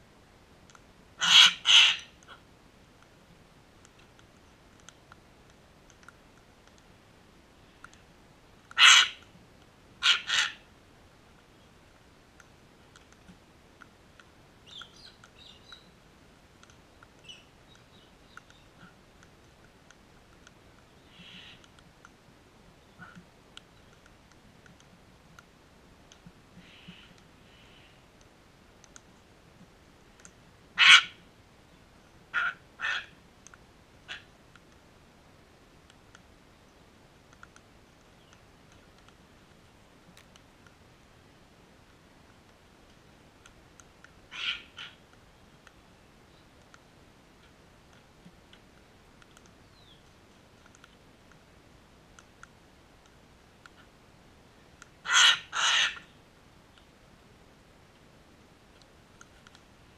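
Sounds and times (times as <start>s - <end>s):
faint clicks: 0.6s - 0.9s, 2.2s - 7.0s, 7.6s - 9.8s, 11.3s - 22.2s, 23.0s - 30.4s, 33.4s - 34.9s, 35.8s - 40.8s, 41.8s - 54.0s, 54.7s - 55.0s, 56.7s - 57.0s, 58.7s - 59.8s
cockatoos screeching: 1.2s - 2.1s, 8.8s - 9.2s, 10.0s - 10.6s, 55.1s - 56.0s
cockatoo squawks: 1.2s - 2.4s, 8.8s - 9.2s, 10.0s - 10.7s, 21.1s - 21.6s, 30.8s - 31.2s, 32.3s - 33.2s, 34.1s - 34.3s, 44.3s - 45.0s, 55.0s - 56.1s
faint bird chirps: 14.6s - 16.0s, 16.9s - 19.0s, 20.8s - 21.7s, 26.6s - 28.1s, 49.5s - 50.1s.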